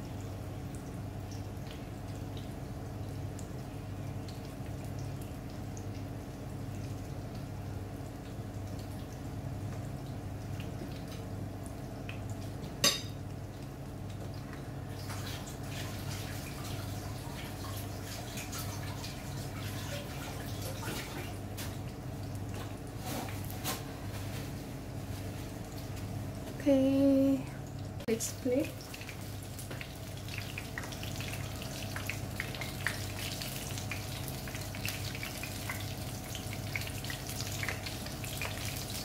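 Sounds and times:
fish sizzling in oil: 28.0s - 39.0s.

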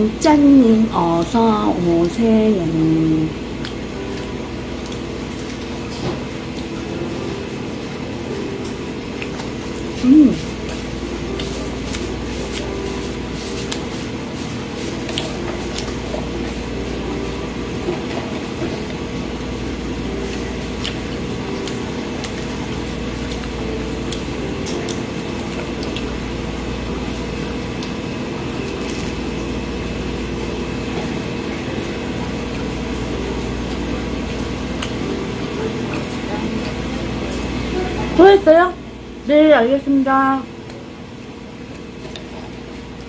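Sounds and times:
steady mechanical hum: 0.0s - 43.0s
person chewing crisp bread: 9.1s - 16.7s, 20.0s - 35.0s.

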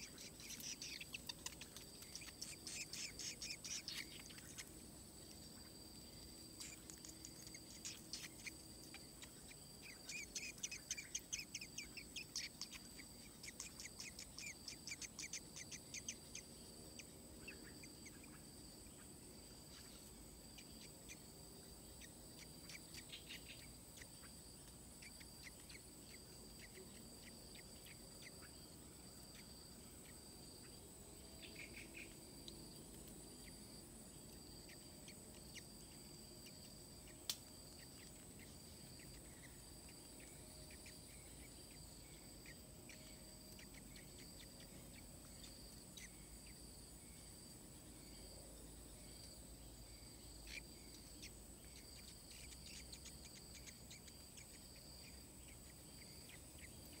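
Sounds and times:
high-pitched bird chirping: 0.0s - 4.7s, 6.6s - 18.4s, 31.4s - 32.2s
insects trilling: 0.0s - 57.0s.

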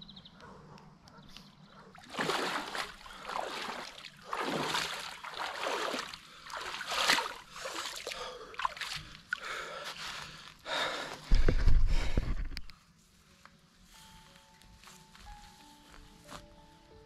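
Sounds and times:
water splashing from swimming: 2.0s - 9.5s.

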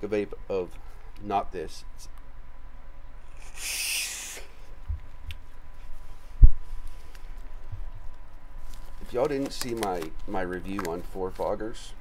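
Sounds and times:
air hissing through vape: 3.3s - 4.7s.

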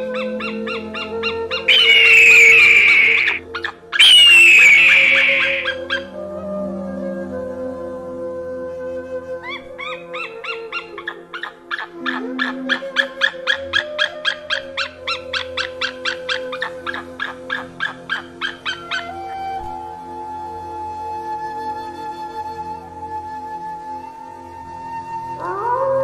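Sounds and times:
eagle yelping calls: 0.0s - 6.2s, 9.4s - 19.5s, 25.4s - 26.0s
soft background music: 0.0s - 26.0s.

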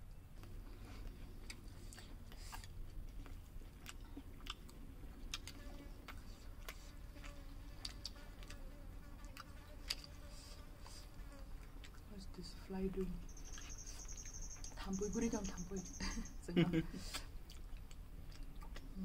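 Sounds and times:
people eating with hands: 0.0s - 16.2s, 16.9s - 19.0s
housefly buzzing: 6.9s - 11.5s.

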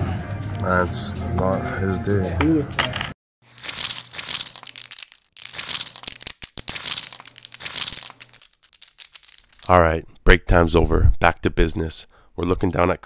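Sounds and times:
poker chips clicking: 3.5s - 9.7s.

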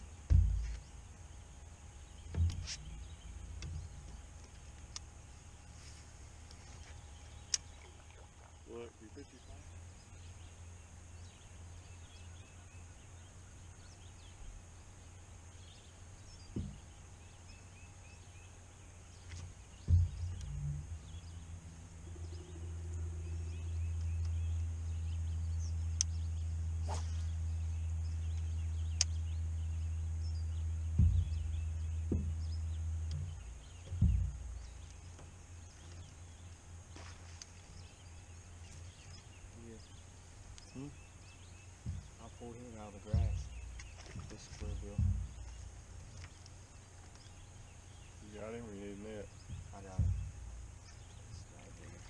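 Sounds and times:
short thumps: 0.0s - 1.2s, 2.0s - 4.9s, 16.4s - 17.0s, 19.2s - 24.4s, 30.6s - 36.2s, 41.8s - 46.5s, 48.8s - 52.0s.

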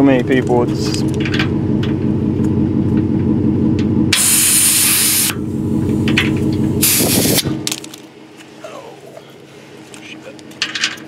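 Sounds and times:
steady motor hum: 0.0s - 11.0s
compressed air hissing: 4.2s - 5.5s, 6.8s - 7.6s.

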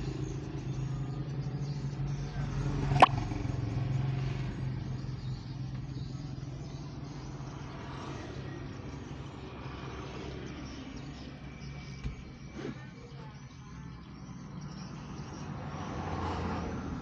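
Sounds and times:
car engine idling: 0.0s - 12.4s.

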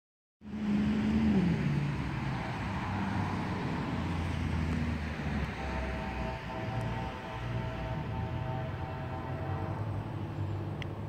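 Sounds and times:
traffic rumble: 0.4s - 11.0s
vehicle passing: 0.4s - 11.0s
approaching train: 0.5s - 11.0s
distant locomotive horn chord: 5.0s - 10.8s.

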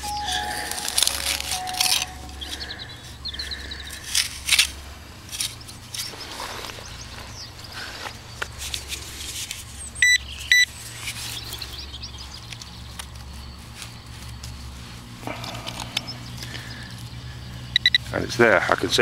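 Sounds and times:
probe scratching through earth: 1.0s - 17.7s
pinpointer probe short high beeps: 10.0s - 10.7s, 17.7s - 18.1s.

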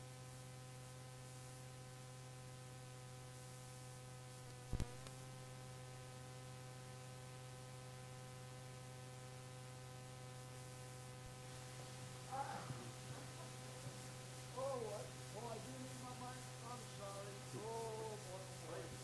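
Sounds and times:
faint electrical hum: 0.0s - 19.0s.

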